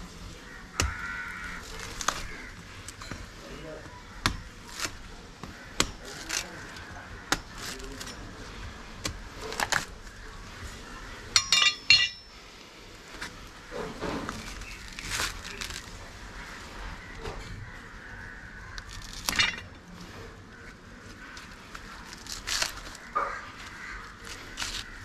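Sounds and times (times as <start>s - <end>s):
ringing metallic clinks: 11.4s - 12.4s.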